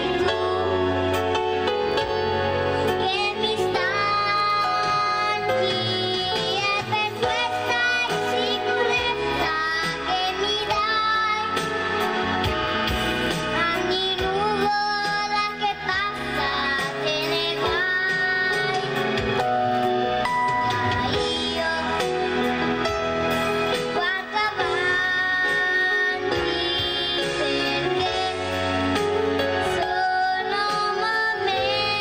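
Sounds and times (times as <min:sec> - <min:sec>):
instrumental backing with bass: 0:00.0 - 0:32.0.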